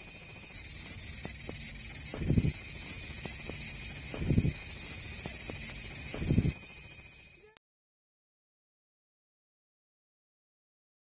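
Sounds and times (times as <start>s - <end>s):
cicadas buzzing: 0.0s - 7.6s
low thuds: 0.8s - 6.7s.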